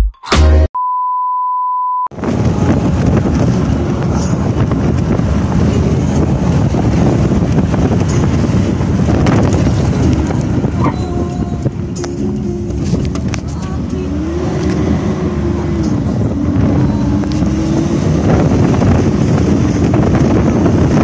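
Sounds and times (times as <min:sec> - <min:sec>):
electronic beep tone: 0:00.8 - 0:02.1
vehicle road and wind noise: 0:02.1 - 0:21.0.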